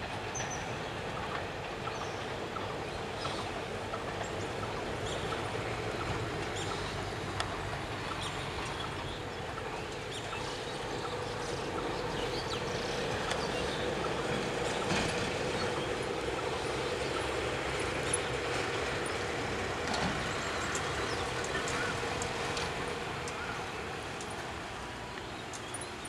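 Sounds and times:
locomotive engine drone: 0.0s - 26.0s
faint chirps and clicks: 25.1s - 26.0s.

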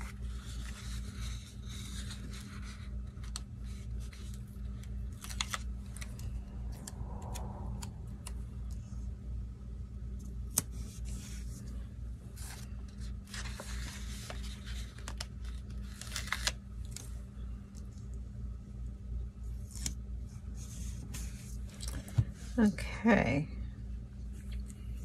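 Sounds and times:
stickers peeling and rustling: 0.0s - 8.9s, 10.2s - 18.1s
steady low hum: 0.0s - 25.0s.

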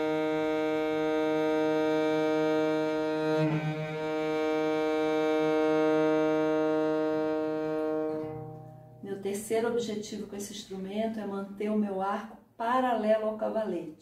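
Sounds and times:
bowed viola da gamba note: 0.0s - 9.1s.

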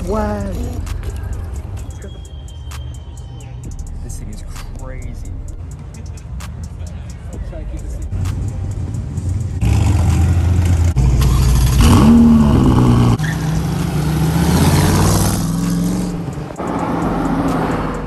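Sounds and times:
sports car engines revving: 7.6s - 18.0s.

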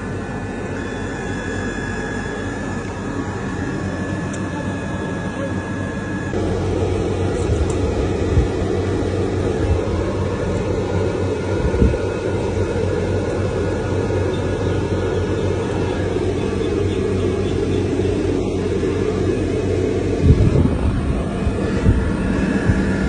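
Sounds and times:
low hum: 0.0s - 23.0s
low mechanical drone: 0.0s - 23.0s.

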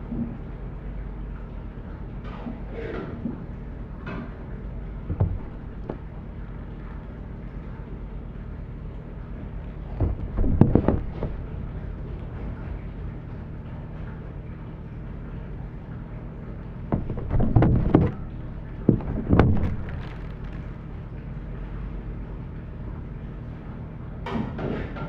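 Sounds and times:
steady low hum: 0.0s - 25.0s
plastic packets clattering on steel: 19.6s - 20.7s.

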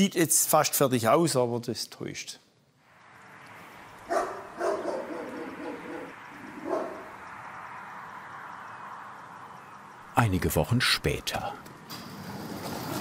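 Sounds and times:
steady outdoor hiss: 0.0s - 13.0s
dog barking: 4.1s - 7.1s.

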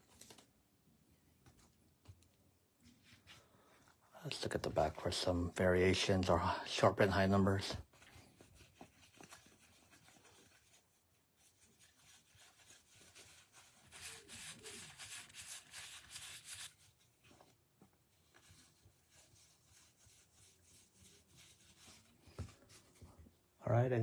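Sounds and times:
cards rustling against each other: 0.0s - 0.5s, 7.0s - 23.1s.

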